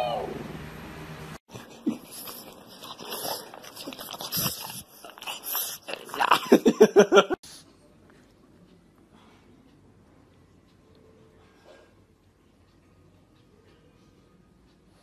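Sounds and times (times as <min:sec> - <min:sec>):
dog snorting and sniffing: 0:01.5 - 0:06.4.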